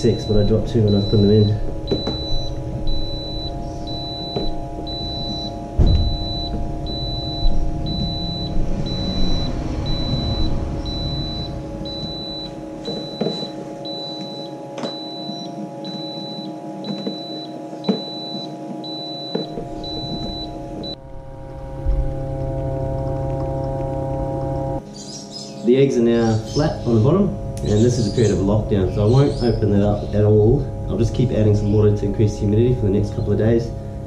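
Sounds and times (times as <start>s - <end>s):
high alarm beeps: 0.0s - 21.1s
fan humming: 0.0s - 34.0s.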